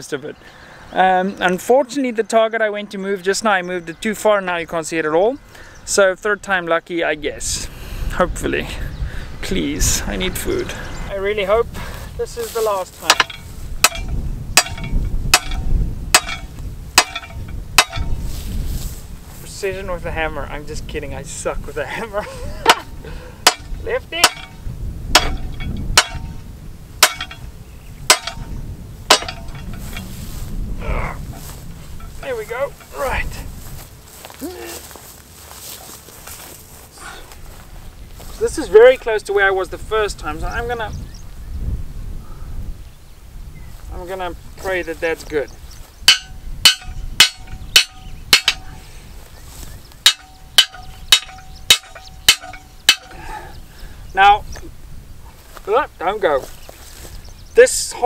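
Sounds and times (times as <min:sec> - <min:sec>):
hammer striking steel: 0:13.0 - 0:18.1, 0:22.7 - 0:24.6, 0:25.2 - 0:26.4, 0:27.0 - 0:27.5, 0:28.1 - 0:28.5, 0:29.1 - 0:30.0, 0:46.1 - 0:48.7, 0:50.0 - 0:53.2.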